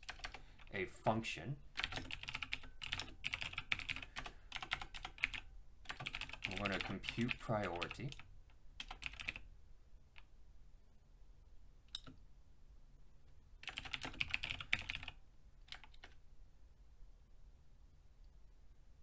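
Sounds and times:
typing on computer keyboard: 0.0 - 0.7, 1.8 - 9.5, 11.9 - 12.2, 13.6 - 16.2.

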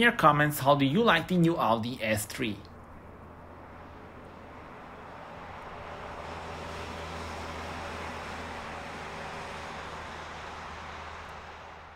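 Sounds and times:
car driving past: 2.8 - 11.9.

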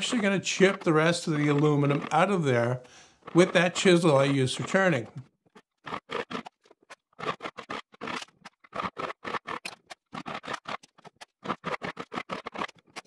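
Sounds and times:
chisel scraping metal on lathe: 0.0 - 5.0.

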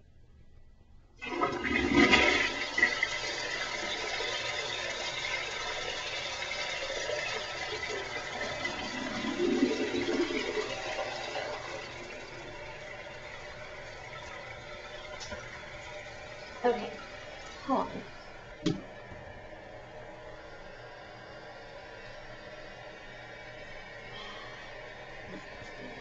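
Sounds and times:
toilet flushing: 1.2 - 26.0.

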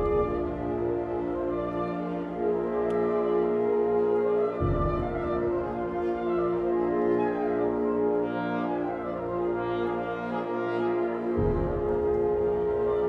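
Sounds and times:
wind ensemble sustained chords: 0.0 - 13.0.

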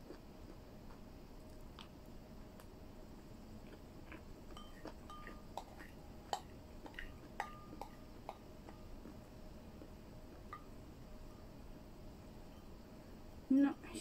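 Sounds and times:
utensil clinking against bowl: 4.6 - 8.4.

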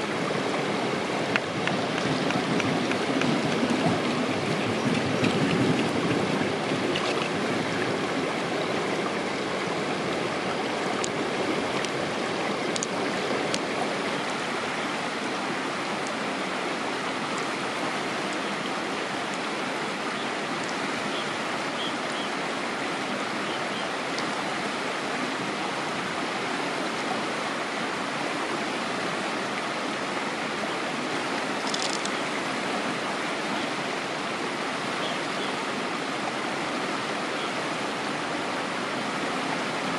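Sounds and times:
stream running over stones: 0.0 - 39.9
faint clicks: 31.6 - 32.2.

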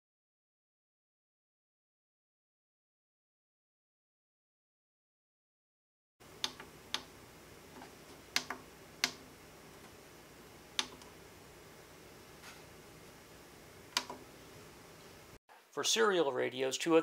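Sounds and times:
push buttons clicking: 6.4 - 7.1, 7.8 - 10.0, 10.8 - 11.1, 13.9 - 14.3.

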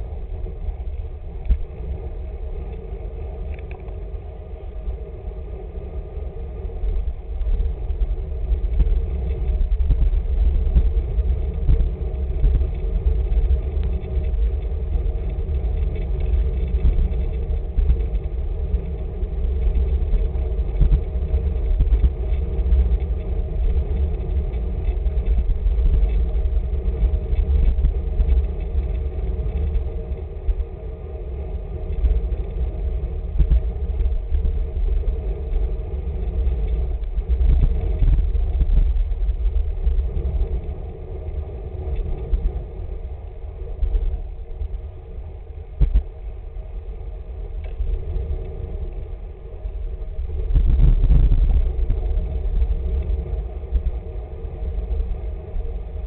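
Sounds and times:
wind rumbling on microphone: 0.0 - 56.0.

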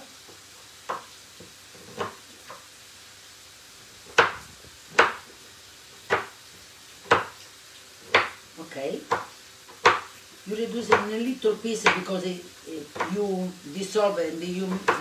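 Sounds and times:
knife knocking on wooden board: 1.8 - 2.6.

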